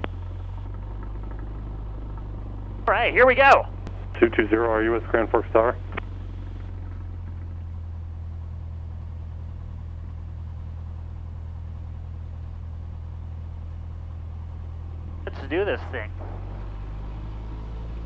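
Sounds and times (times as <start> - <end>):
aircraft engine droning: 0.0 - 18.0.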